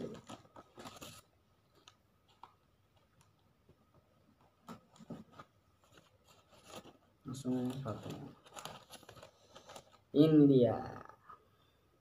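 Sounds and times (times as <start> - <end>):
tissue paper rustling and crinkling: 0.0 - 3.2, 4.6 - 10.1.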